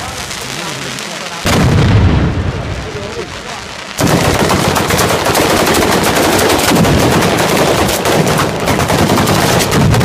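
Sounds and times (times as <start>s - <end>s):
rapid firecracker bangs: 0.0s - 10.0s.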